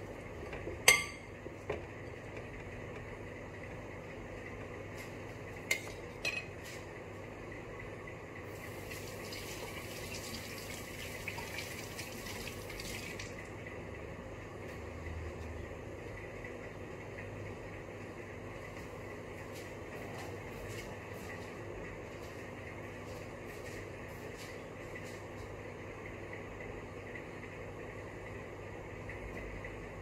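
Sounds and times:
kitchen tap running: 0:08.5 - 0:13.5.

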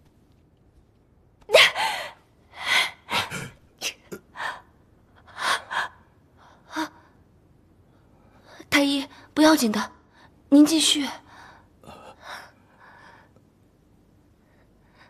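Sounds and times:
woman gasping in pain: 0:01.5 - 0:03.5.

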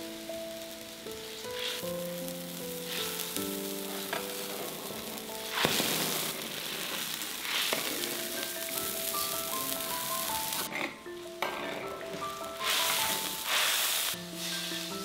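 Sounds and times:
broth boiling and sizzling: 0:00.0 - 0:15.0
gentle melodic background music: 0:00.0 - 0:15.0
ladle stirring in wok: 0:03.9 - 0:09.8, 0:10.5 - 0:15.0.

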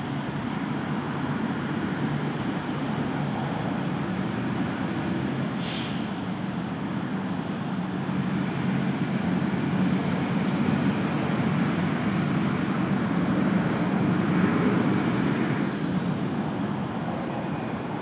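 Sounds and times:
passing vehicle rumble: 0:07.6 - 0:18.0.

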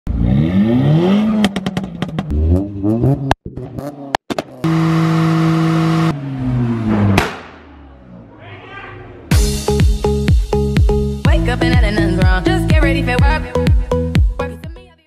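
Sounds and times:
car engines revving: 0:00.1 - 0:09.3
engine backfire cracks: 0:07.0 - 0:07.7.

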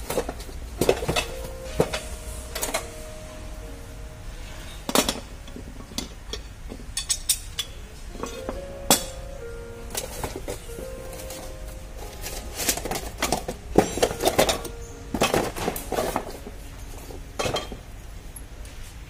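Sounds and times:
metal tools clinking and clanking: 0:09.9 - 0:17.8.

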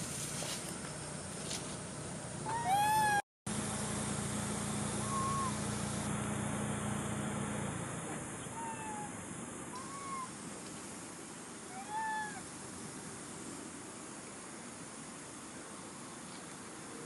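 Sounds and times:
background hiss: 0:00.0 - 0:03.0, 0:03.6 - 0:17.0
low hum: 0:00.0 - 0:08.6
monkey coo calls: 0:02.5 - 0:03.2, 0:05.0 - 0:05.6, 0:08.4 - 0:09.2, 0:09.8 - 0:10.3, 0:11.7 - 0:12.4.

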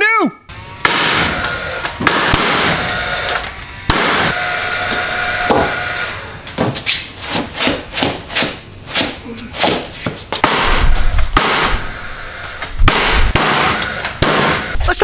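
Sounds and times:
nail gun shots: 0:00.8 - 0:02.9, 0:03.9 - 0:04.3, 0:10.4 - 0:11.9, 0:12.8 - 0:14.8.

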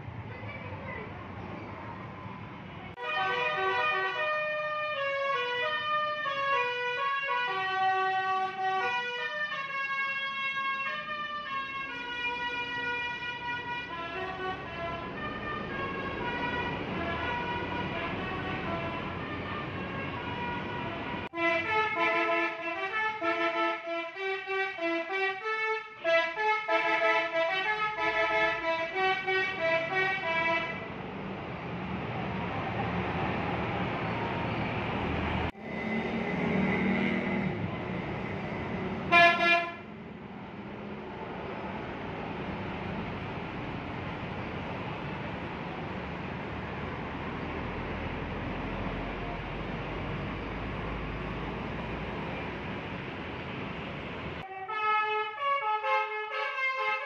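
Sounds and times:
bus horn playing a melody: 0:03.0 - 0:30.9, 0:39.1 - 0:39.9, 0:54.4 - 0:57.0.

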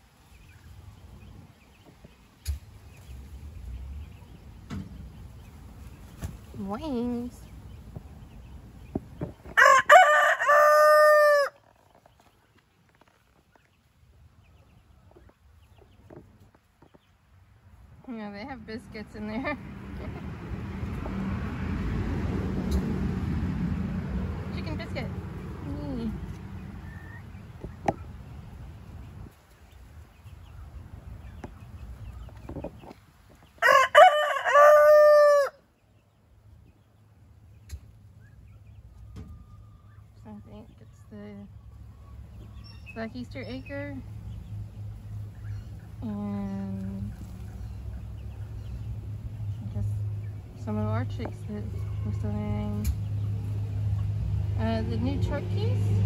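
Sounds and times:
rooster crowing: 0:09.6 - 0:11.6, 0:33.6 - 0:35.7.

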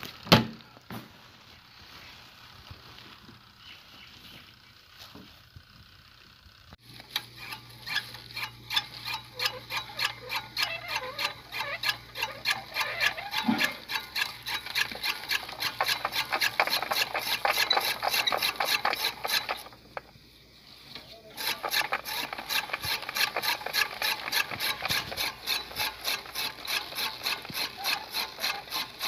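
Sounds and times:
hand-cranked cutter chopping greens: 0:06.8 - 0:20.1, 0:21.3 - 0:29.0.

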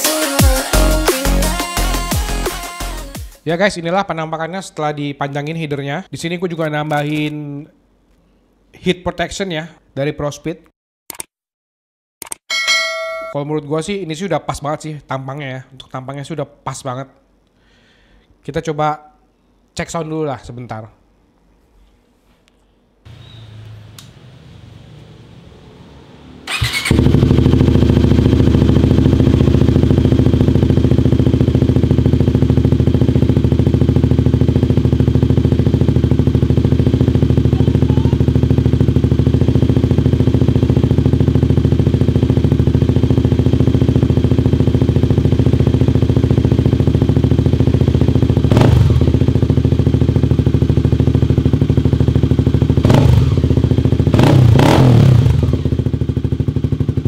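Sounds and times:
engine throttle blips: 0:23.1 - 0:42.0
motorcycle engine idling: 0:26.5 - 0:54.2, 0:55.2 - 0:57.0.

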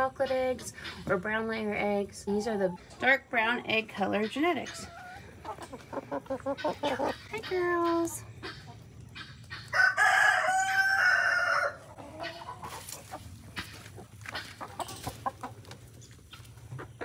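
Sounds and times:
hens clucking: 0:00.0 - 0:17.0
rooster crowing: 0:09.7 - 0:11.8.

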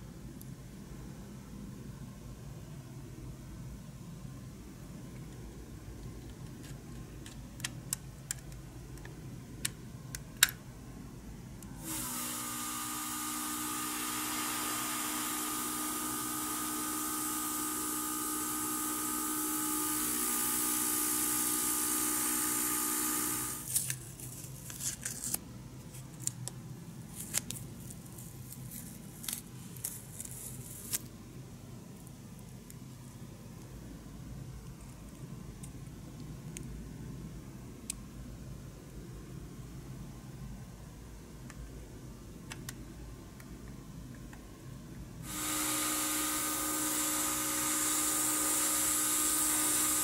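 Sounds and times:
airbrush spraying hiss: 0:11.8 - 0:18.6, 0:45.3 - 0:50.0.

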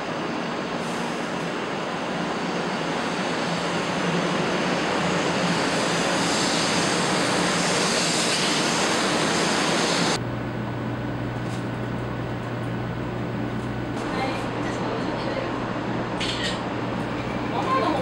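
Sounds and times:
train rushing past: 0:00.0 - 0:10.2.

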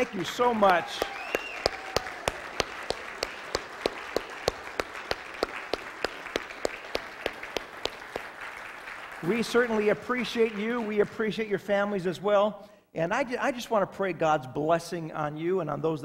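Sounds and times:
loud close hand claps: 0:00.0 - 0:11.2
crowd applauding: 0:00.0 - 0:11.3.

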